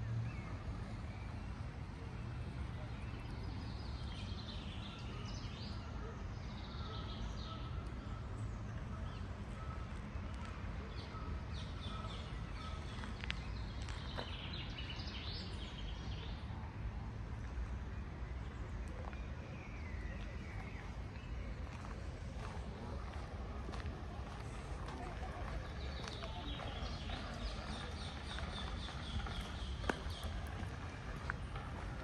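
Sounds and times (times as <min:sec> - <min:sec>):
birds chirping: 0:02.4 - 0:16.5, 0:17.6 - 0:32.0
steady low rumble: 0:16.6 - 0:32.0.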